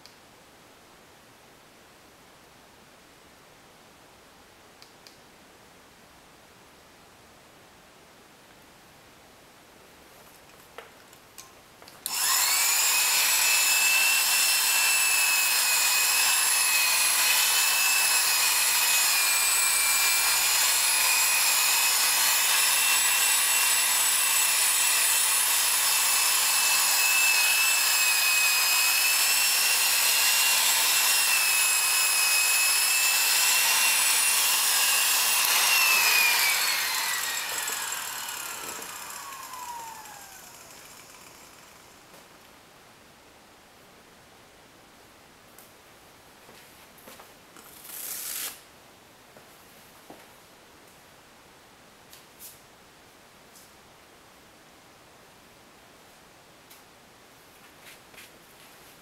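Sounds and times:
electric polisher whining: 12.1s - 41.9s.

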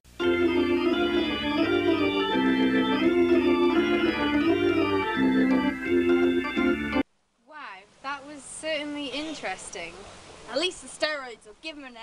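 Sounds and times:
organ chords: 0.1s - 7.0s.

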